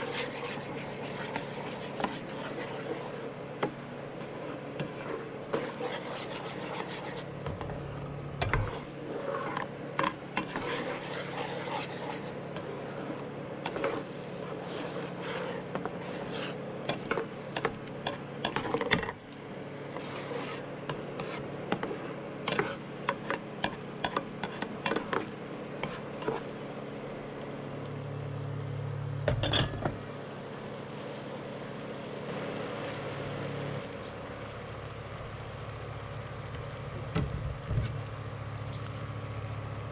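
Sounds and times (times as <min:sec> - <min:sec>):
spatula scraping frying pan: 0:00.0 - 0:03.3, 0:04.2 - 0:07.7, 0:08.5 - 0:09.8, 0:10.4 - 0:17.2, 0:19.9 - 0:26.6
low hum: 0:06.5 - 0:09.2, 0:26.5 - 0:39.9.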